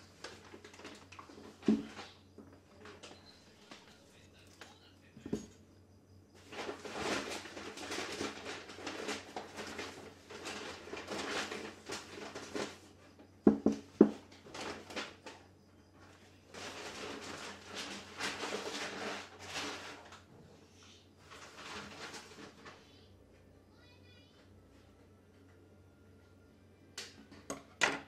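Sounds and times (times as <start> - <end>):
rustling and scraping: 0.0 - 5.7, 6.3 - 23.0.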